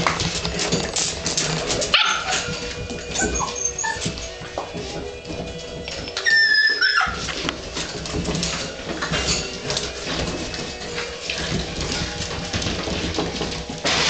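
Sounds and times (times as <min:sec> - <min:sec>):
puppies scuffling: 0:00.0 - 0:14.0
puppy squealing: 0:02.0 - 0:04.2, 0:06.0 - 0:07.2.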